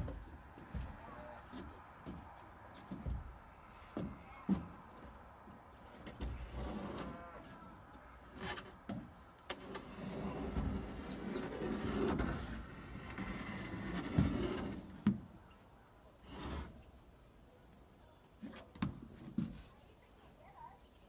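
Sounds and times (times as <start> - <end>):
timbers creaking under load: 0.0 - 15.2.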